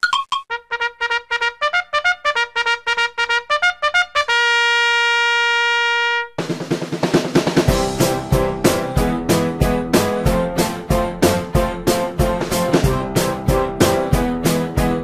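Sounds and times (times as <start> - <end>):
music track with a beat: 6.4 - 15.0.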